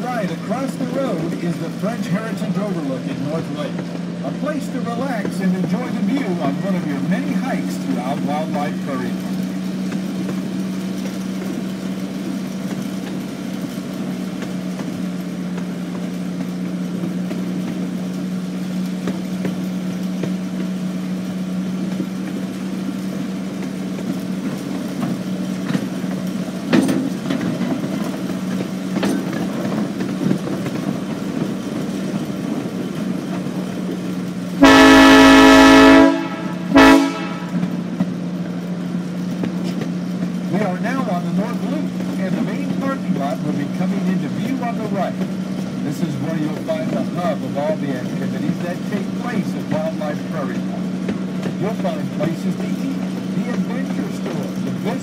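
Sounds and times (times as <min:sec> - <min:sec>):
small train humming: 0:00.0 - 0:55.0
train horn: 0:34.6 - 0:37.8.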